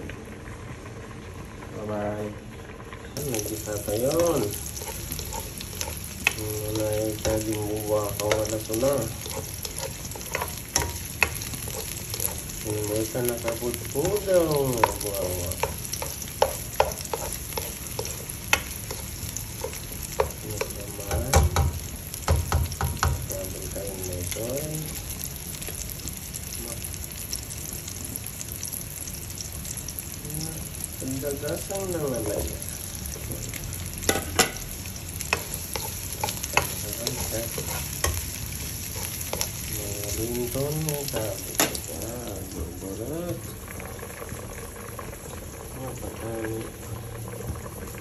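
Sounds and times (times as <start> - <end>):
onion sizzling in oil: 0.0 - 48.0
spatula scraping a pan: 3.3 - 20.8, 35.2 - 41.9
spatula clicking on pan: 9.2 - 12.4.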